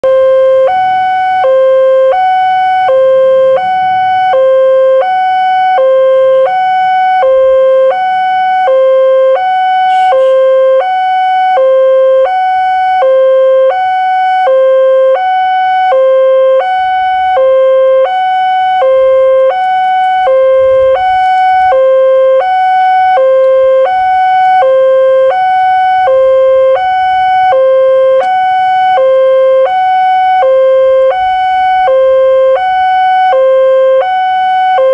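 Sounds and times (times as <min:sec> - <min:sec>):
two-tone level crossing alarm: 0:00.0 - 0:34.9.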